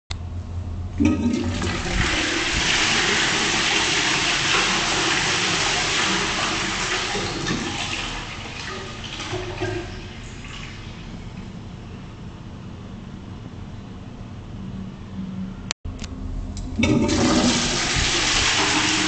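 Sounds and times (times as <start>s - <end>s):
toilet water rushing: 1.0s - 11.8s, 16.8s - 19.0s
toilet flush lever click: 16.6s - 19.0s.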